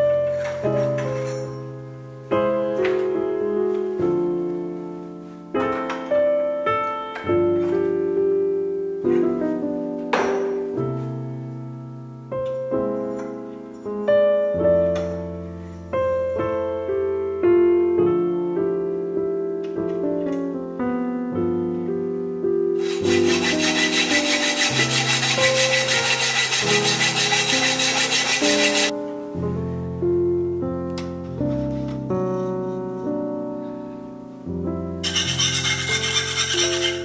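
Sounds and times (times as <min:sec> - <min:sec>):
solo piano music: 0:00.0 - 0:37.0
rhythmic scraping noise: 0:22.8 - 0:28.9, 0:35.0 - 0:37.0.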